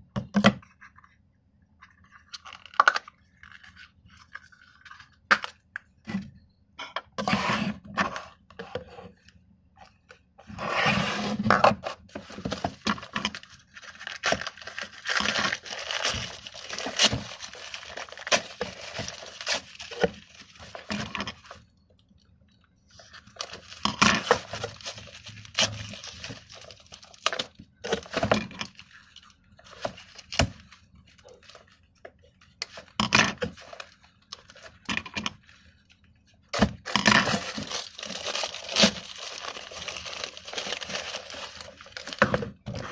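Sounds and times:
plastic wrapping crinkling: 12.1s - 21.6s, 23.0s - 31.8s, 36.8s - 42.9s.

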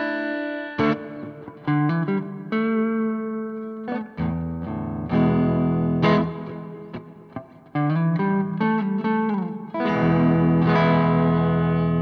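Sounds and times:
overdriven electric guitar: 0.0s - 12.0s.

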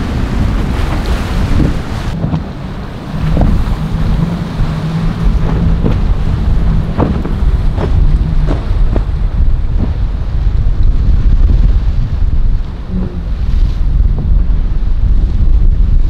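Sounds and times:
boat engine drone: 0.0s - 16.0s
wind buffeting microphone: 0.0s - 16.0s
water knocks and splashes: 0.3s - 11.5s.

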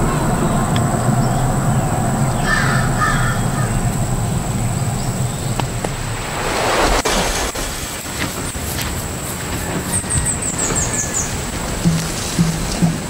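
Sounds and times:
crow calls: 0.0s - 4.1s
low rumble: 0.0s - 8.6s
rushing noise: 0.0s - 13.0s.

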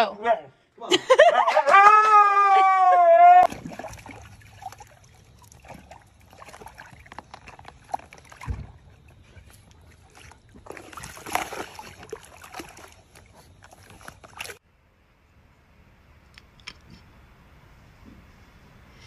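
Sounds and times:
dog splashing water in tub: 3.5s - 14.6s
low thump: 8.4s - 8.8s.

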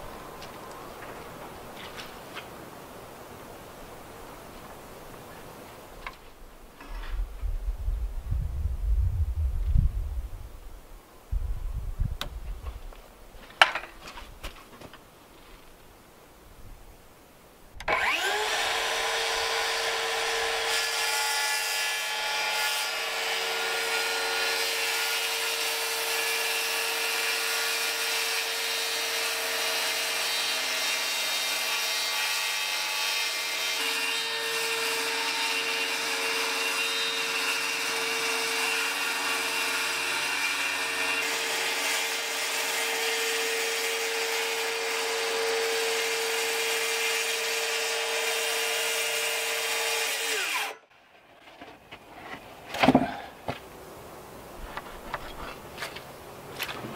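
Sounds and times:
circular saw cutting plywood: 17.9s - 50.8s.

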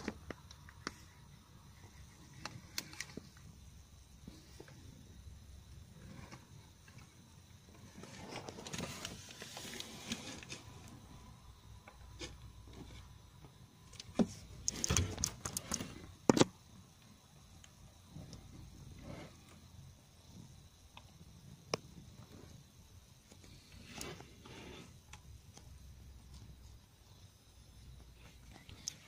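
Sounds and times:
rubbing and scraping handling noise: 0.0s - 11.3s, 12.0s - 16.5s, 23.2s - 26.8s.

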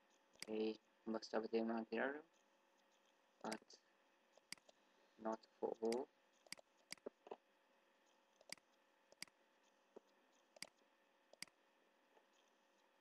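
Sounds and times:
faint steady hum: 0.0s - 13.0s
computer mouse clicking: 0.1s - 0.7s, 2.3s - 3.7s, 4.3s - 4.8s, 5.8s - 7.3s, 8.0s - 11.6s.

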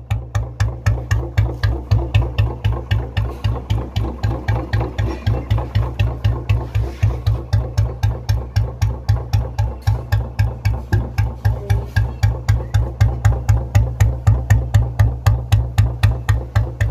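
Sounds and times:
motorcycle engine idling: 0.0s - 16.9s.

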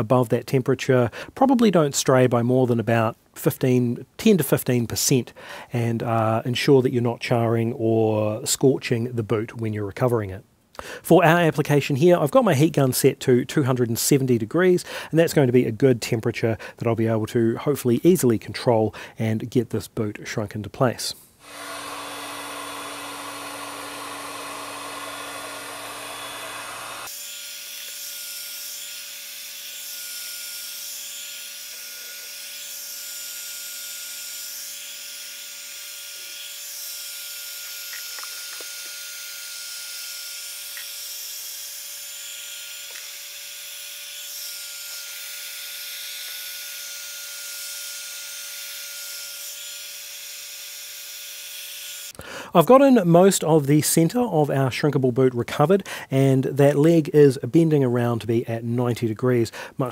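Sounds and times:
heat gun fan whining: 21.4s - 52.2s.

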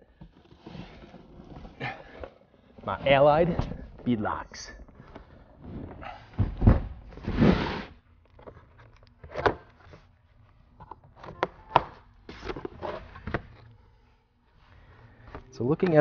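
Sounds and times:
box scraping on wood: 7.2s - 8.0s.

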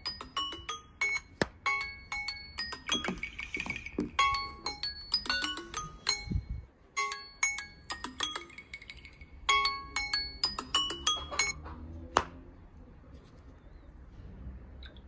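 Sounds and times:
phone alarm melody: 0.0s - 8.8s.

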